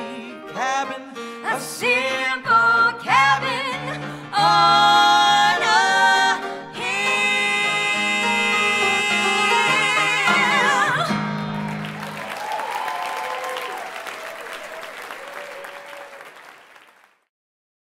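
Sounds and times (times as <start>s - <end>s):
two singers holding a note: 0.0s - 11.2s
audience applause: 10.2s - 17.3s.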